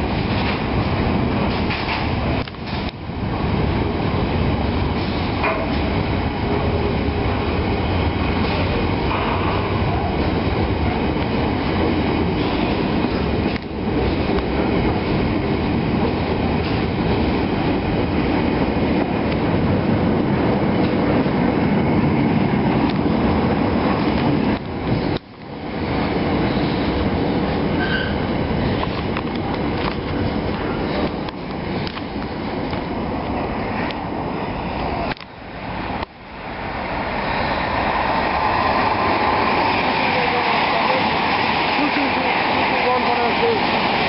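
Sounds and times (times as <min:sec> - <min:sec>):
train wheels rumbling on rails: 0:00.0 - 0:44.0.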